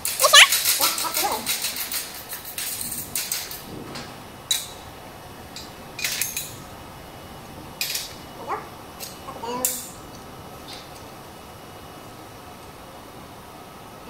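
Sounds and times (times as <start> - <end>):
metal tubes clinking and knocking: 0.0 - 4.8, 5.6 - 6.6.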